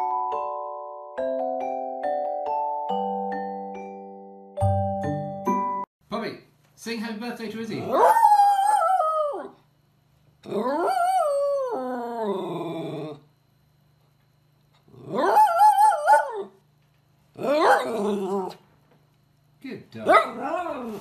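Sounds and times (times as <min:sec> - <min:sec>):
dog howling: 0:07.8 - 0:09.6, 0:10.4 - 0:13.2, 0:15.0 - 0:16.6, 0:17.4 - 0:18.6, 0:20.1 - 0:21.0.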